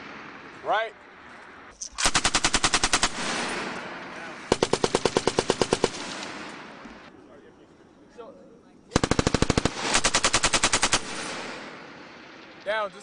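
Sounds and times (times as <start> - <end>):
machine gun automatic fire: 2.0 - 3.9, 4.5 - 6.8, 8.9 - 12.4
gunshot echoes: 2.0 - 6.9, 8.9 - 11.9.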